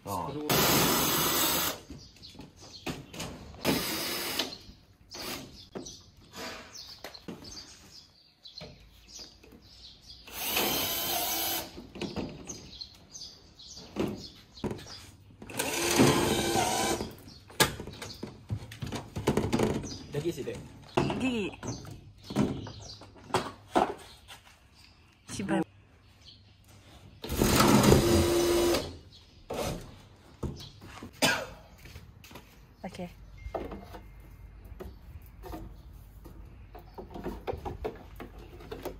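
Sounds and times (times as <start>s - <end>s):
cordless drill whirring: 10.3s - 11.7s, 15.5s - 17.1s, 27.3s - 29.0s.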